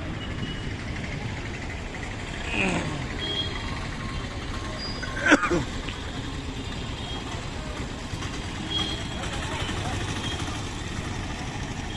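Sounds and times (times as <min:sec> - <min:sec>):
street traffic hum: 0:00.0 - 0:11.9.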